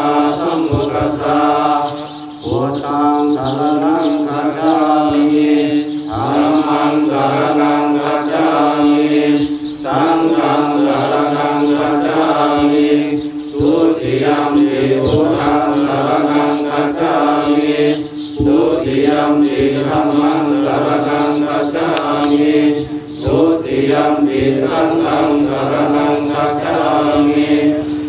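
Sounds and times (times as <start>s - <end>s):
group chanting in unison: 0.0s - 28.0s.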